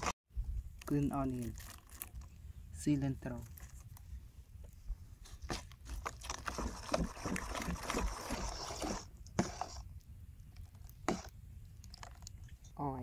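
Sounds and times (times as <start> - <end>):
metal spoon stirring batter in bowl: 5.9 - 9.9.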